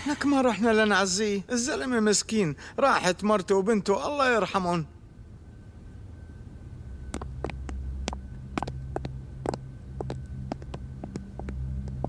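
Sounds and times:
low drone: 4.9 - 12.0
footsteps on hard floor: 7.1 - 12.0.

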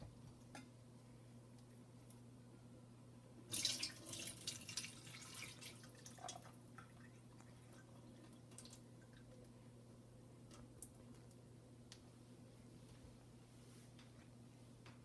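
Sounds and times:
liquid pouring into metal sink: 3.5 - 7.1
water dripping: 3.5 - 9.6, 10.4 - 12.0.

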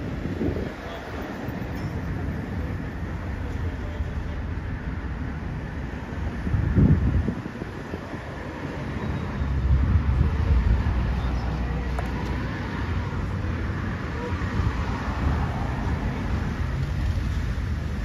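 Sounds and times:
wind buffeting microphone: 0.0 - 1.7, 6.0 - 8.8, 9.5 - 11.2
wind through grass and trees: 0.0 - 18.0.

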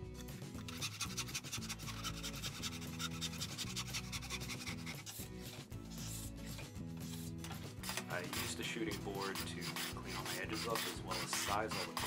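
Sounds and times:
background music: 0.0 - 12.0
backsaw cutting wood: 0.7 - 5.2, 7.9 - 12.0.

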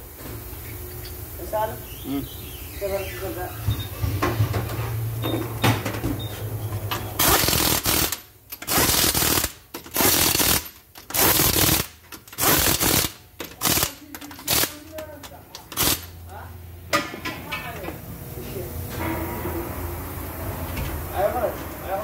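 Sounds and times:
impact wrench bursts: 6.9 - 16.2.

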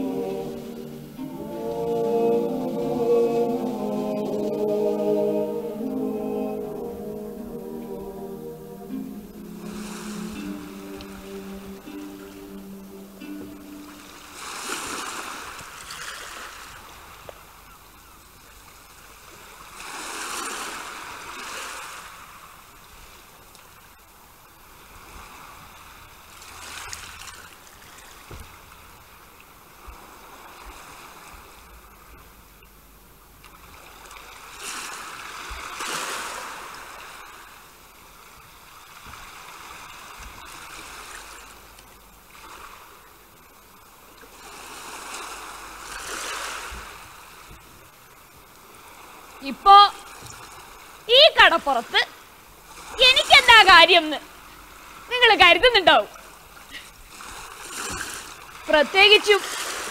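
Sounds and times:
sea waves washing in: 0.0 - 17.2, 19.0 - 23.4, 33.7 - 51.2, 56.1 - 59.9.

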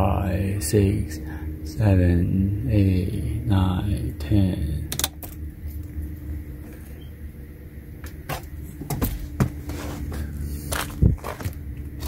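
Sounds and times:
faint steady tone: 0.0 - 8.0
steady low hum: 0.0 - 12.0
scattered clicks and knocks: 4.9 - 5.8.

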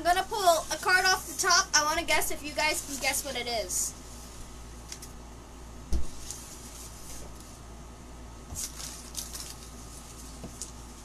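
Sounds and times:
dull thump: 5.9 - 6.2.

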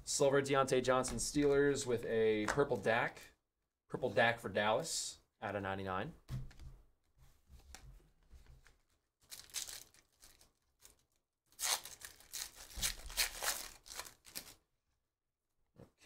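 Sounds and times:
foil wrapper crinkling: 9.2 - 14.6
foil wrapper tearing: 9.3 - 14.6.

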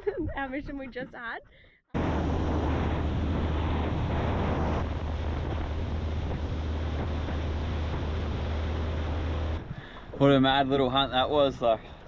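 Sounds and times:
wind on microphone: 2.0 - 10.6
outboard motor droning: 2.0 - 12.0.

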